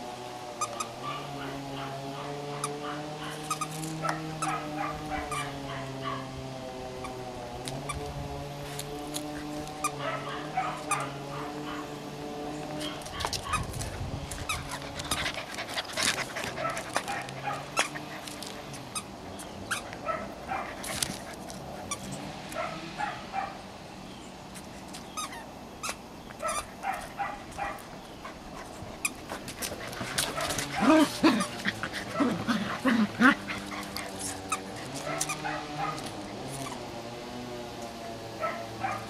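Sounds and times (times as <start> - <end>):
puppies yipping and whimpering: 25.2 - 37.0.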